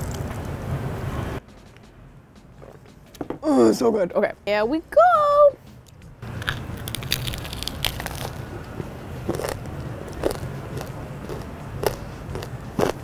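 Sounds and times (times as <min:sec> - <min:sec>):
crunchy chewing: 0:06.3 - 0:13.0.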